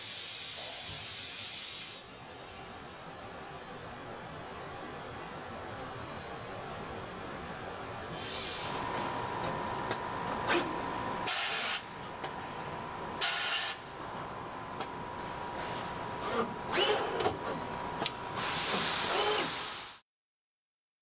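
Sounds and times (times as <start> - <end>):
pneumatic air hisses: 0.0 - 2.7, 8.1 - 8.8, 11.3 - 11.8, 13.2 - 13.8, 18.4 - 20.0.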